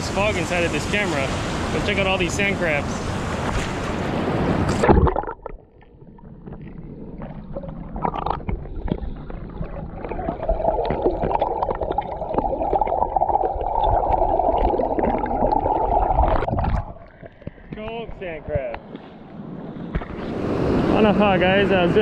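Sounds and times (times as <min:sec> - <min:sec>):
underwater churn of seawater: 0:00.0 - 0:17.8, 0:18.8 - 0:22.0
small underwater clicks: 0:04.7 - 0:12.9.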